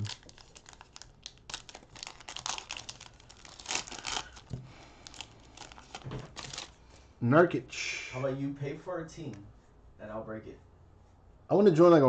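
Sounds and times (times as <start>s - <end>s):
card pack wrapper crinkling and tearing: 0.0s - 6.8s.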